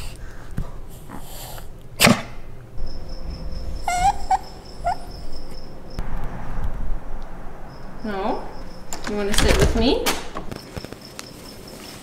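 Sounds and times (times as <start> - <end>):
dog whining: 3.2 - 5.8.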